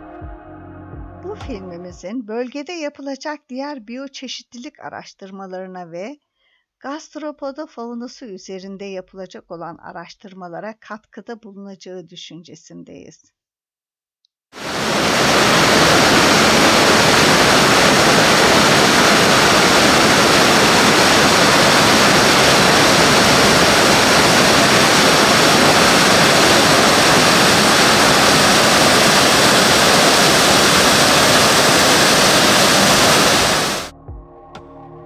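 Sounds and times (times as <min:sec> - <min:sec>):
loud steady rushing noise: 0:14.6 - 0:33.9.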